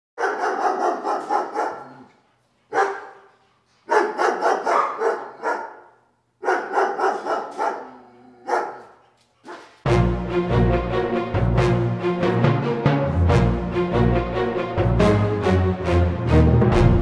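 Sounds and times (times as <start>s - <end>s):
dog barking: 0.2s - 3.3s, 3.9s - 9.8s.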